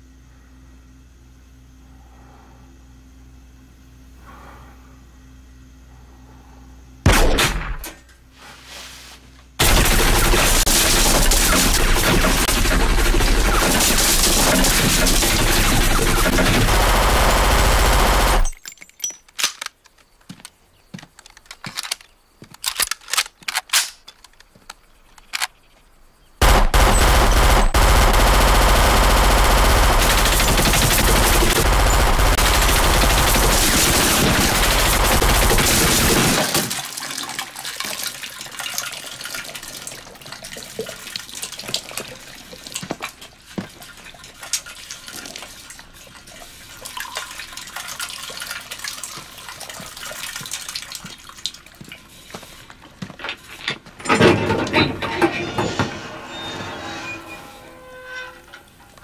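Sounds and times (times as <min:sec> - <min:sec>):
automatic gunfire: 0:09.6 - 0:18.5, 0:26.4 - 0:36.7.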